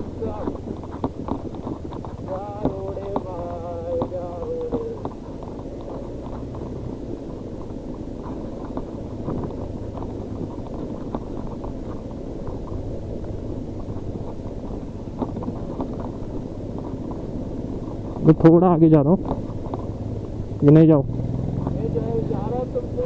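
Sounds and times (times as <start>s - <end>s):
bike knocks and rattles: 0.0s - 23.0s
motorcycle engine running: 0.0s - 23.0s.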